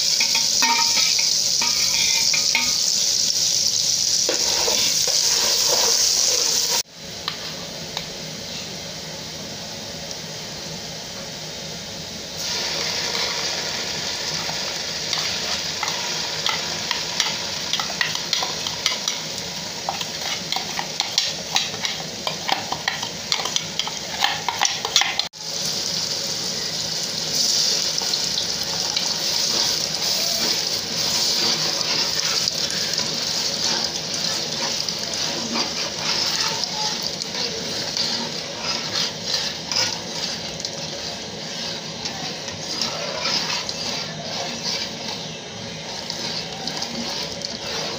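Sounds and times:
onions sizzling in hot oil: 0.0s - 47.9s
metal spoon scraping pot: 0.2s - 2.9s, 15.1s - 25.3s, 28.8s - 47.9s.

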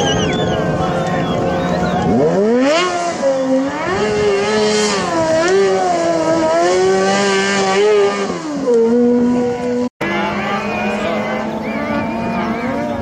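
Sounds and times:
motorcycle engine revving high: 0.0s - 13.0s.

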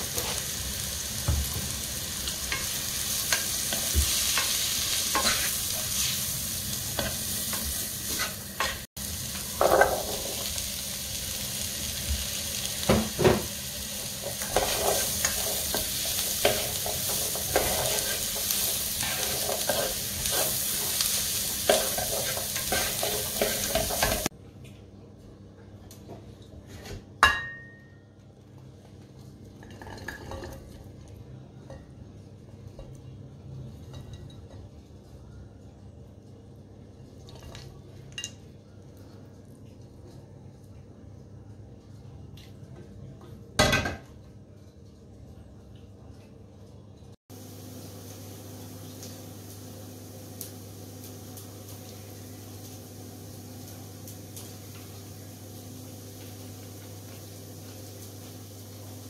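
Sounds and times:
food sizzling in a frying pan: 0.0s - 24.3s, 47.3s - 59.0s
spatula scraping a pan: 3.7s - 6.2s, 14.3s - 24.3s.

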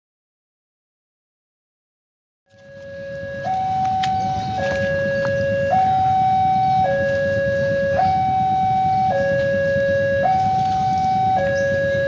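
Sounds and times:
two-tone electronic warning siren: 2.5s - 12.0s
low steady rumble: 2.6s - 12.0s.

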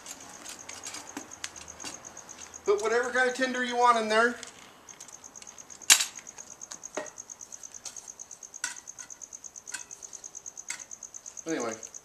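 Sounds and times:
knocks and clinks of camp stove: 8.6s - 10.0s, 10.6s - 10.9s.

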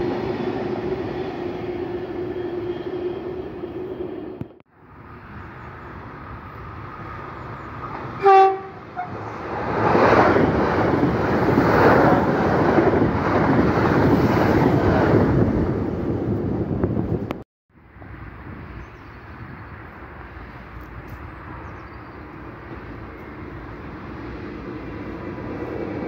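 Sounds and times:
train passing at speed: 0.0s - 26.0s
train horn blast: 8.2s - 9.2s.

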